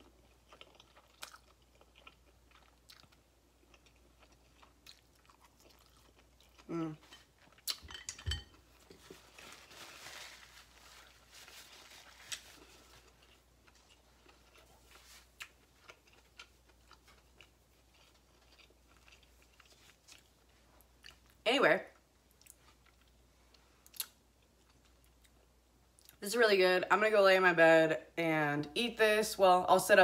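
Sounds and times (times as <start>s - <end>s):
person chewing noodles: 0.0s - 8.0s, 11.9s - 21.4s, 22.3s - 26.2s.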